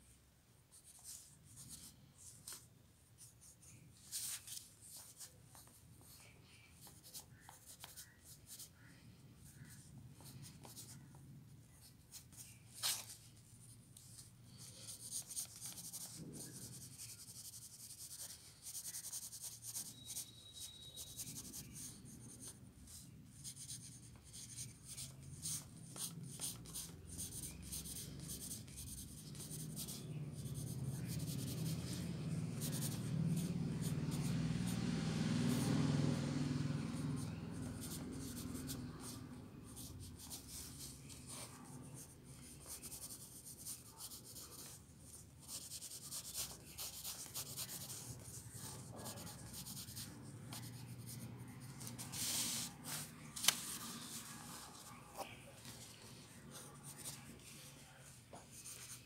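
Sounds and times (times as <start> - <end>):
pencil sketching on paper: 14.2 - 55.2.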